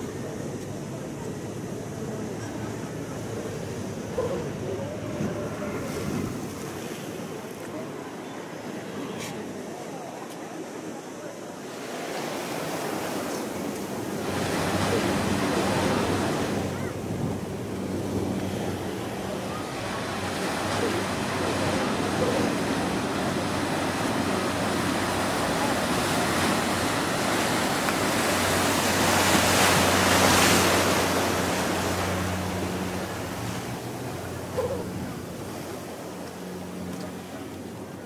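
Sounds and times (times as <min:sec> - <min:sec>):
surf washing against seawall: 0:00.0 - 0:38.0.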